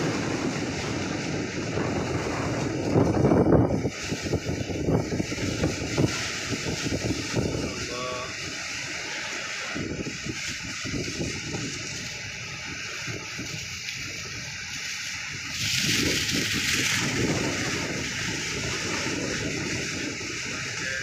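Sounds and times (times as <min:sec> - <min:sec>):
splashing water: 0:00.0 - 0:21.0
wind buffeting microphone: 0:00.0 - 0:21.0.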